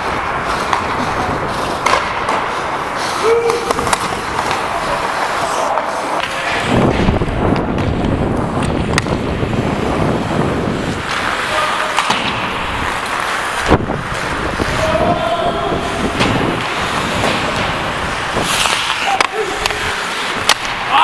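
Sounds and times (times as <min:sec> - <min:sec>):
skate blades scraping ice: 0:00.0 - 0:21.0
wind on microphone: 0:06.6 - 0:11.2, 0:13.6 - 0:18.6.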